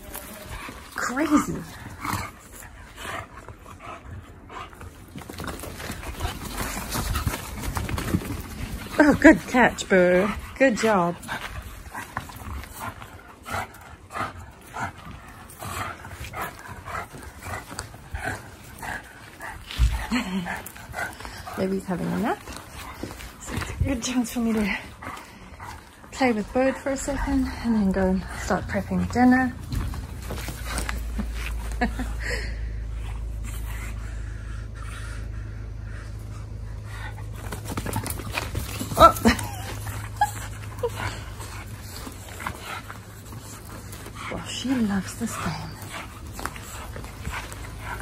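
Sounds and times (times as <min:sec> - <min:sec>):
dog growling and grunting: 0:00.0 - 0:33.4.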